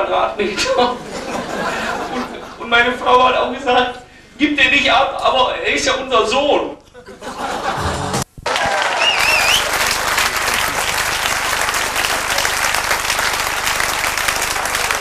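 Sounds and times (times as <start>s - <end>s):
audience applauding: 7.8s - 15.0s
short wavering whistle: 9.0s - 9.8s.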